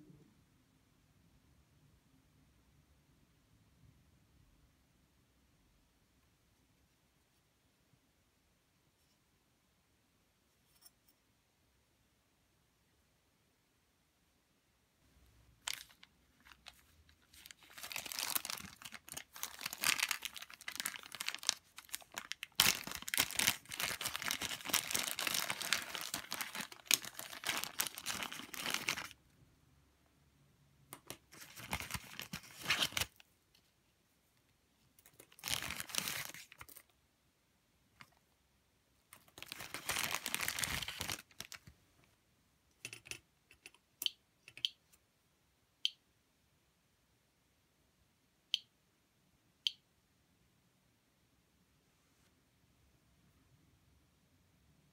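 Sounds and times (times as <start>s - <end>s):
plastic bag crinkling: 15.6s - 29.2s, 31.3s - 33.2s, 35.1s - 36.8s, 39.2s - 41.7s.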